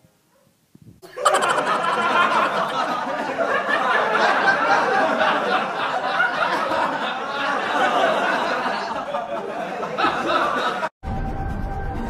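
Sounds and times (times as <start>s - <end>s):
crowd laughing and chattering: 1.0s - 10.9s.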